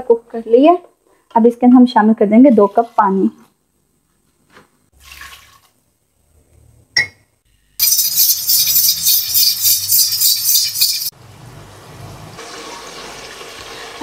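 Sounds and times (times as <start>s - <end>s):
pressure cooker steam hissing: 7.8s - 11.1s
pressure cooker valve rattling: 7.8s - 11.1s.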